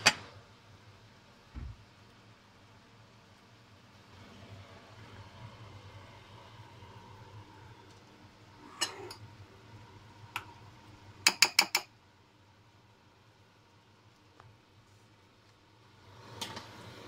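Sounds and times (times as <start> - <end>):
metal fork clinking on frying pan: 11.2 - 11.9.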